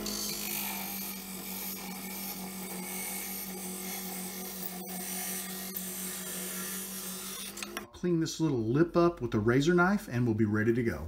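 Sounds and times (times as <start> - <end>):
lathe humming: 0.0 - 7.9.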